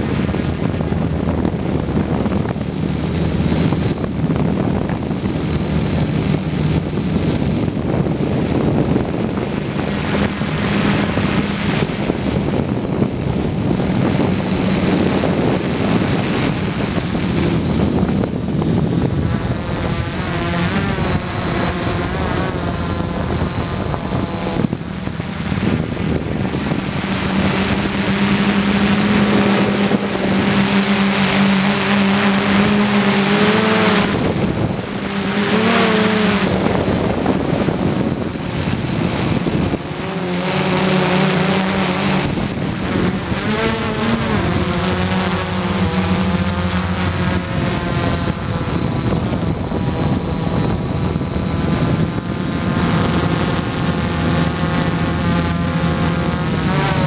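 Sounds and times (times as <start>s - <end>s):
quadcopter motors whining: 0.0s - 57.0s.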